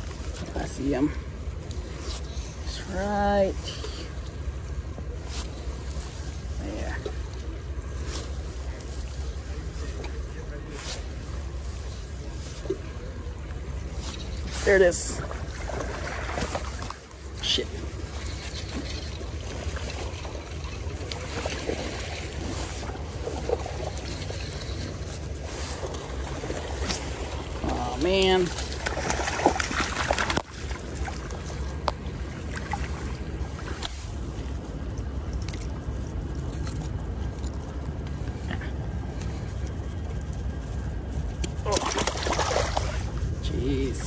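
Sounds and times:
low background rumble: 0.0 - 44.0
creek water flowing over gravel: 14.8 - 34.1
fish splashing at surface: 41.7 - 43.1.

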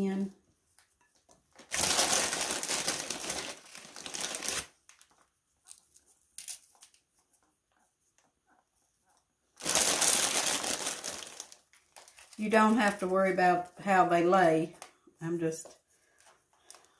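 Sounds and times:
plastic bag crinkling: 1.5 - 7.1, 9.6 - 13.7.

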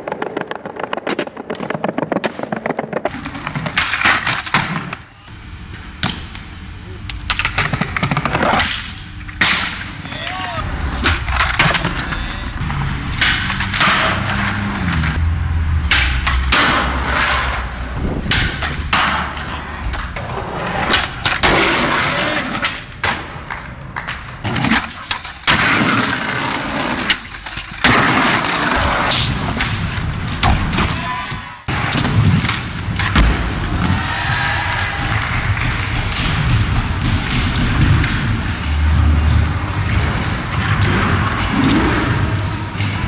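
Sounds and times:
skateboard slapping down: 0.0 - 5.1, 7.1 - 15.1, 15.9 - 30.9
skateboard wheels rolling: 0.0 - 31.0
skateboard trucks grinding metal: 10.6 - 22.7.

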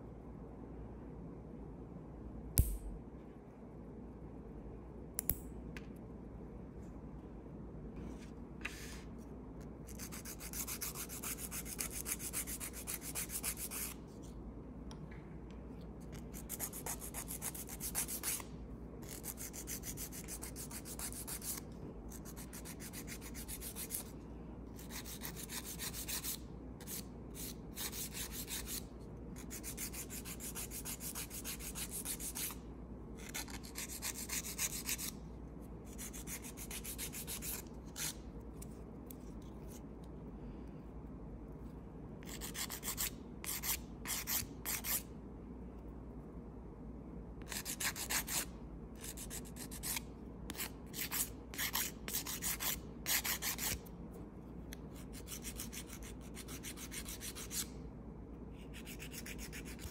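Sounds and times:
nail file filing fingernail: 9.9 - 14.0, 16.1 - 24.1, 24.8 - 32.6, 33.2 - 35.2, 35.8 - 39.8, 42.2 - 45.1, 47.4 - 53.8, 54.9 - 57.7, 58.6 - 59.9.

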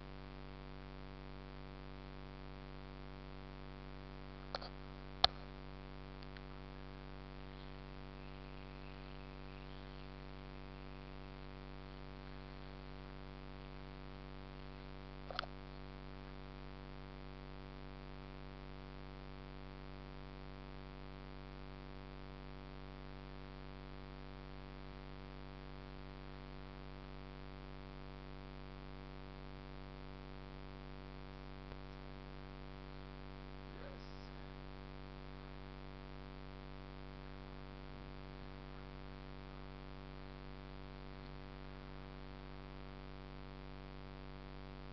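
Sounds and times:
electrical hum: 0.0 - 44.9
sharp click: 4.5 - 5.4.

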